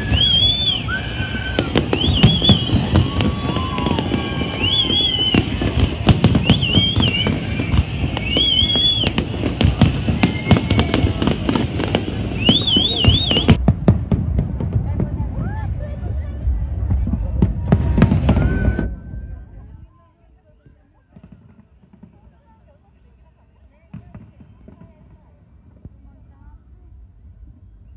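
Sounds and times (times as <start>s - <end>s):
fireworks bangs and crackles: 0.0s - 27.9s
low rumble: 13.5s - 20.1s.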